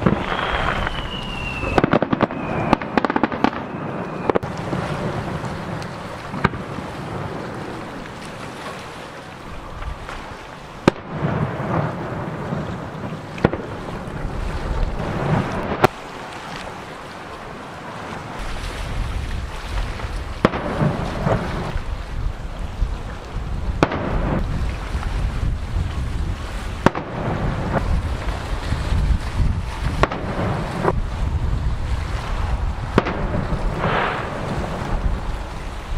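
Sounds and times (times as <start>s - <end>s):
firework whistle sliding down: 0.0s - 4.4s
firework shells bursting: 0.0s - 4.8s
firework crackle: 0.0s - 16.3s, 17.8s - 35.9s.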